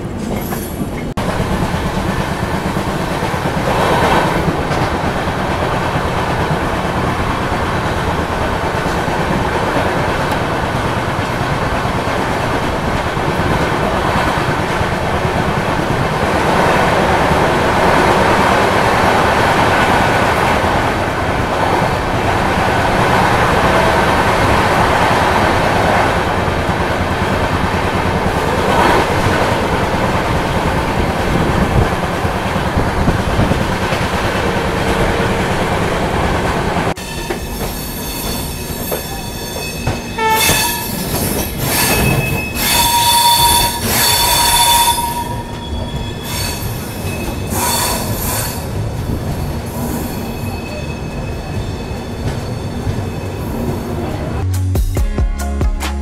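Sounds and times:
train wheels rumbling on track: 0.0s - 54.5s
train wheel squeals: 37.0s - 54.2s.

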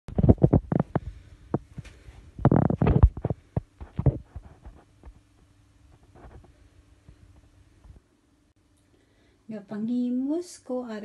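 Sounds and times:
hand handling phone microphone: 0.1s - 5.2s
faint steady hum: 0.1s - 11.0s.

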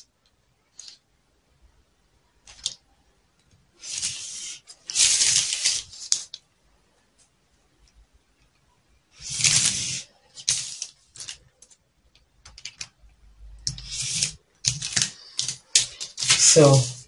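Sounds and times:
marker scratching on paper: 3.8s - 6.1s, 13.7s - 14.4s.

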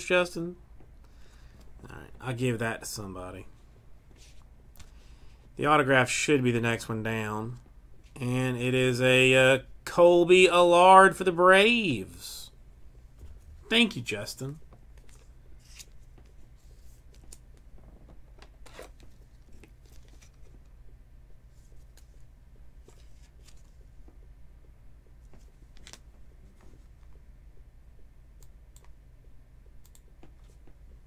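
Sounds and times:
low steady hum: 0.0s - 31.0s
cards clicking and sliding: 15.0s - 17.6s, 25.3s - 26.0s.

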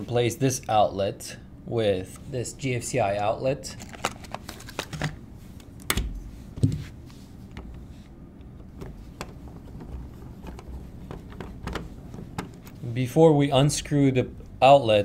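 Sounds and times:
handling clicks and taps: 8.4s - 12.8s.

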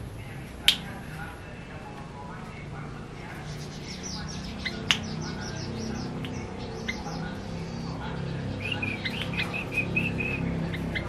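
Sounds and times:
bulbul chirping song: 3.2s - 11.0s.

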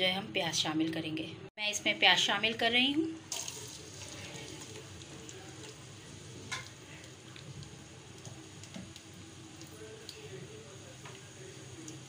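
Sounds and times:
onions sizzling in pan: 3.2s - 12.0s.

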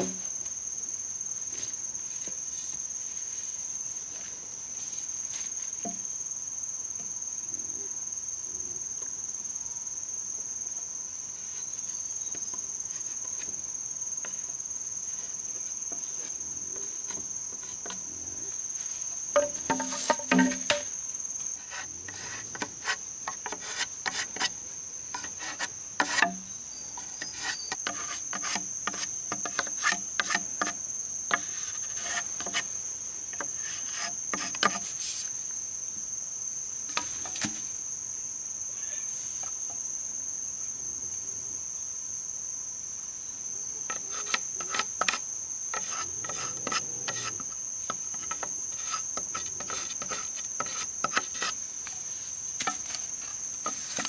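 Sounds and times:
knife knocking and scraping bamboo: 0.0s - 0.3s, 5.8s - 6.1s, 14.2s - 18.1s, 18.8s - 35.3s, 36.9s - 37.7s, 43.9s - 54.0s
high-pitched insect call: 0.0s - 54.0s.

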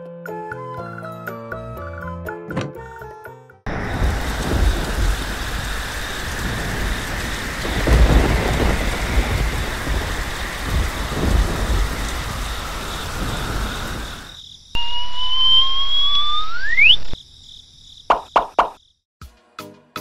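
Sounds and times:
thunder rolling: 3.7s - 15.4s
heavy rain hissing: 3.7s - 17.2s
rising whistle-like tone: 14.8s - 17.2s.

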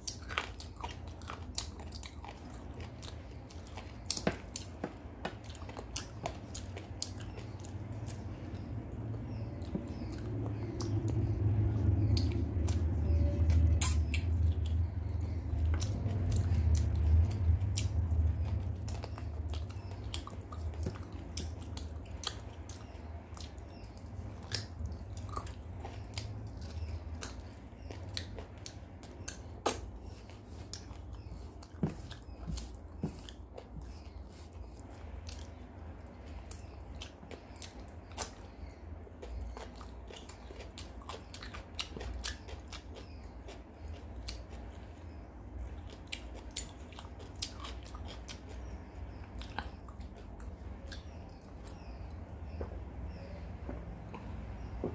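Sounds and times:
close chewing of food: 0.0s - 54.9s
wet mouth clicks and lip smacks: 13.8s - 14.3s.

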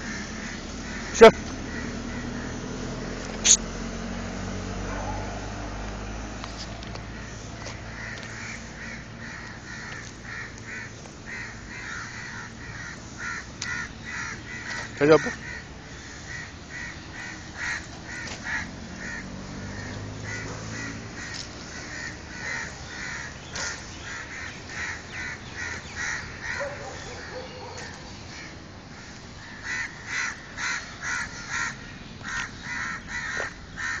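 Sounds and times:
crows cawing: 0.0s - 3.0s, 7.0s - 34.0s.

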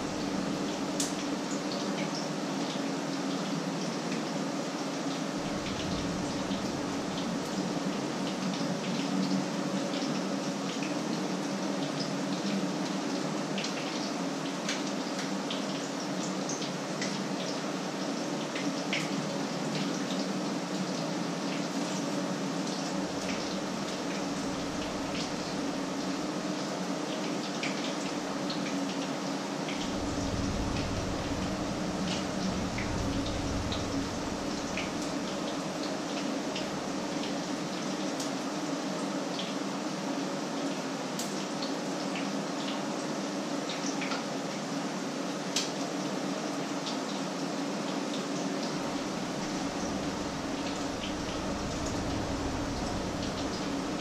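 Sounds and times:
low hum: 0.0s - 0.6s, 5.3s - 7.5s, 23.2s - 25.9s, 29.8s - 35.4s, 48.7s - 54.0s.

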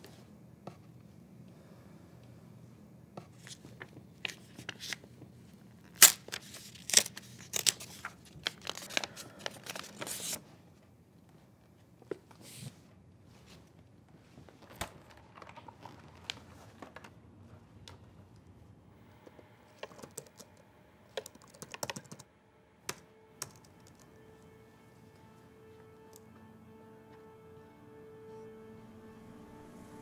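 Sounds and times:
paper pages tearing: 5.8s - 10.4s.

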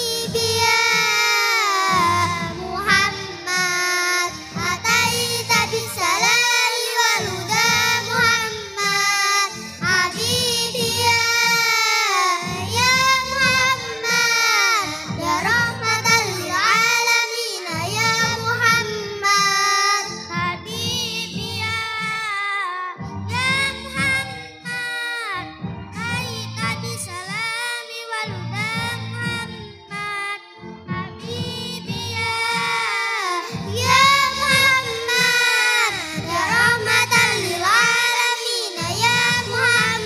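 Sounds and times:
girls singing into microphones: 0.0s - 40.0s
instrumental backing music: 0.0s - 40.0s.

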